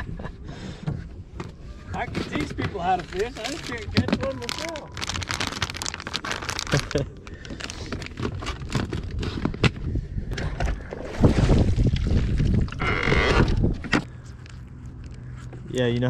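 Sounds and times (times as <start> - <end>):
plastic bag crinkling: 2.8 - 9.2
wind buffeting microphone: 8.6 - 14.0.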